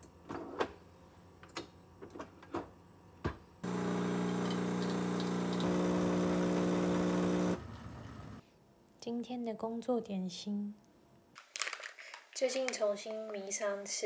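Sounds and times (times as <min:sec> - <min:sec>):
coffee machine pump humming: 0:03.6 - 0:08.4.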